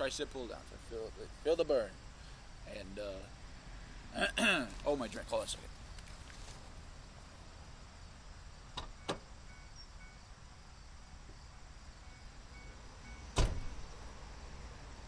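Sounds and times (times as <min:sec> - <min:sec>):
faint steady hiss: 0:00.0 - 0:15.0
thump: 0:13.3 - 0:13.8.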